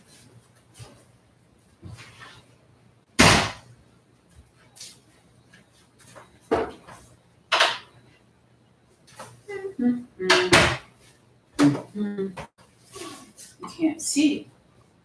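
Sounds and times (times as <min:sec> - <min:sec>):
sharp bang: 0:03.2 - 0:03.6.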